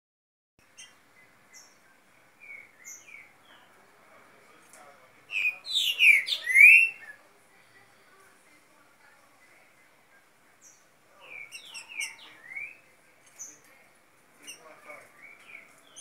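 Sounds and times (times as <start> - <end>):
birds singing: 0.6 - 4.0, 4.6 - 7.2, 9.4 - 16.0.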